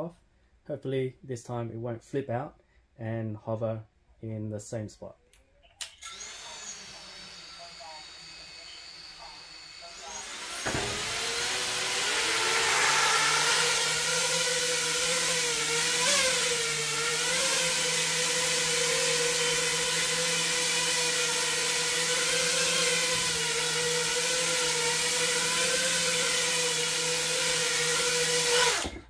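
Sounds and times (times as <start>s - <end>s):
quadcopter motors whining: 6.0s - 29.0s.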